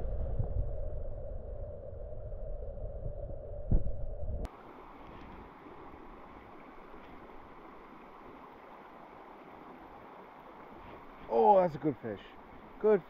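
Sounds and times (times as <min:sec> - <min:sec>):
creek water rushing: 0:04.5 - 0:13.0.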